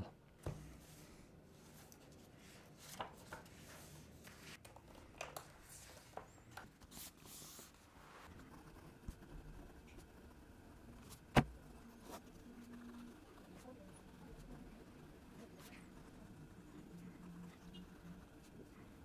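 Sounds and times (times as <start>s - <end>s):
book and notebook rustling: 0.4s - 8.3s.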